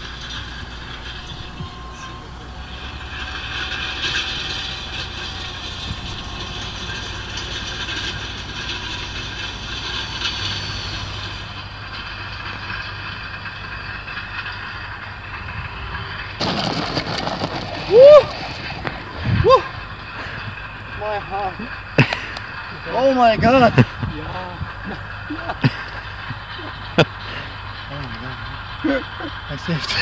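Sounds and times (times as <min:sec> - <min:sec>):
wind rumble on microphone: 0:00.0 - 0:08.7, 0:14.8 - 0:16.4, 0:17.9 - 0:21.3, 0:22.7 - 0:25.4
sudden burst of noise: 0:00.0 - 0:28.6
electric ducted fans hissing: 0:00.0 - 0:30.0.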